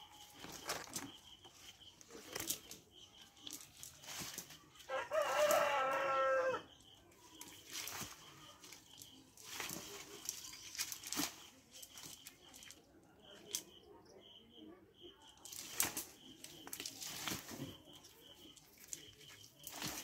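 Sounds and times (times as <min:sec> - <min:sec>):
wet net rustling and scraping on mud: 0:03.4 - 0:06.0, 0:07.4 - 0:12.7, 0:15.5 - 0:20.0
faint high chirp: 0:06.2 - 0:20.0.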